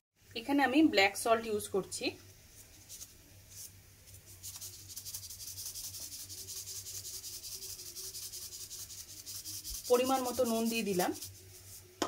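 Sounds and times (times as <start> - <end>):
whisk scraping in bowl: 4.3 - 12.0.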